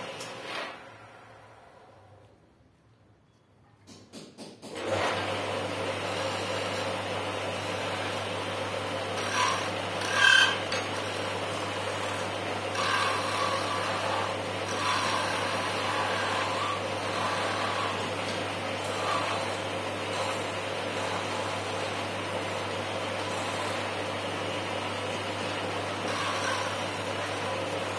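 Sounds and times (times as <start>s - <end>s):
wood lathe humming: 0.0s - 1.4s, 4.8s - 27.9s
chisel cutting wood: 5.9s - 27.9s.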